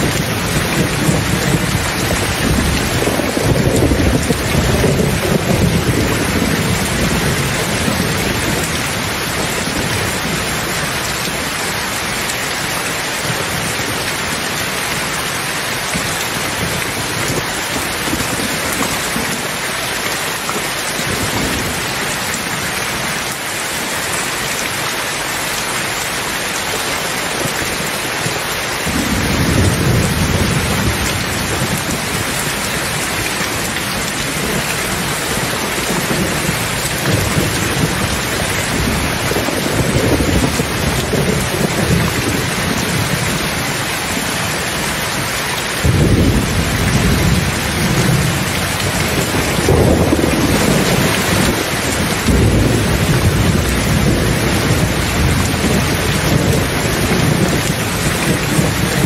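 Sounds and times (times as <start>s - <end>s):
thunder rumbling: 0.0s - 12.2s, 28.8s - 59.0s
steady rain: 0.0s - 59.0s.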